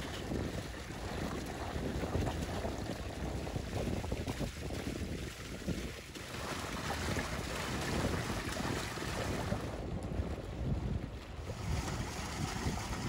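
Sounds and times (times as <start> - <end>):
fountain water gushing and splashing: 0.0 - 10.3, 11.0 - 13.0.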